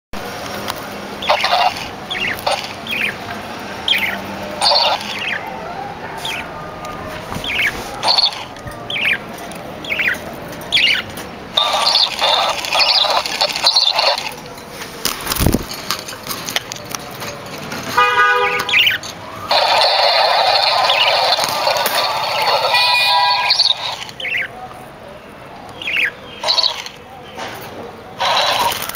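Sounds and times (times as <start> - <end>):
budgerigars chirping: 1.2 - 3.2, 3.8 - 5.5, 7.4 - 14.3, 18.7 - 24.5, 25.8 - 27.0, 28.2 - 28.9.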